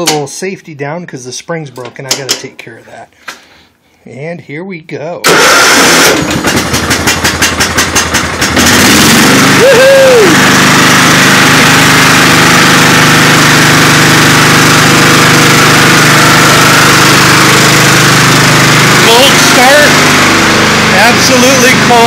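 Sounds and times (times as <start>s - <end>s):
electric starter cranking: 5.2s - 22.0s
lawn tractor engine running: 5.2s - 22.0s.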